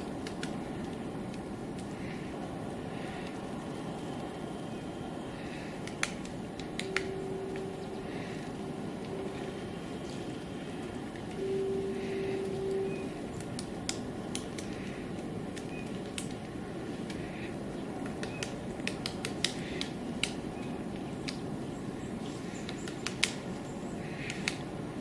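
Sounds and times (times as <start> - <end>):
woodpecker tapping on bark: 5.4 - 8.4, 13.3 - 21.4, 22.4 - 23.4, 24.0 - 24.6.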